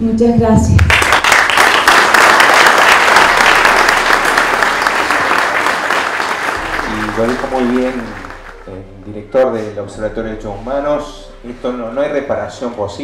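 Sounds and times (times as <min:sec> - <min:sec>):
audience applauding: 0:00.9 - 0:08.8.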